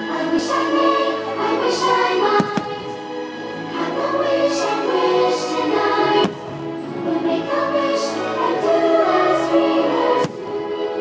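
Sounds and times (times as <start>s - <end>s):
choir singing sustained notes: 0.0s - 11.0s
orchestra over loudspeakers: 0.0s - 11.0s.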